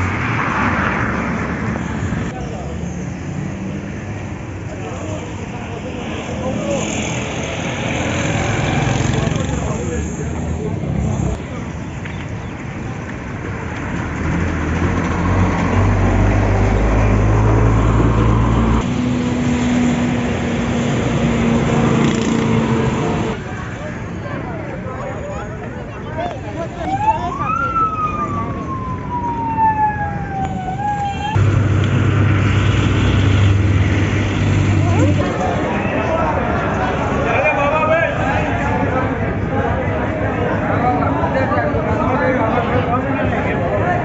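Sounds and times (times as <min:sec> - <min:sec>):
street traffic noise: 0:00.0 - 0:44.0
vehicle engine humming: 0:12.8 - 0:23.9, 0:26.4 - 0:37.2
siren wailing: 0:26.8 - 0:31.5.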